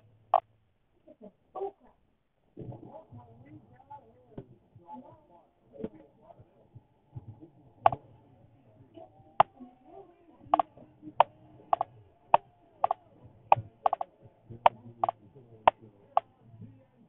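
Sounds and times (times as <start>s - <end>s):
sharp irregular clicks: 10.5s - 16.4s.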